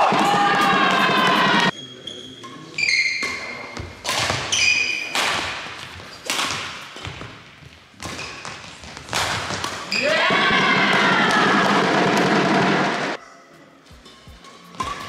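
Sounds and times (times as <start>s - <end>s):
shoes squeaking on court floor: 0.9s - 5.1s, 5.8s - 10.1s
racket striking shuttlecock: 4.0s - 4.5s, 6.2s - 7.4s, 8.0s - 10.1s, 14.0s - 15.0s.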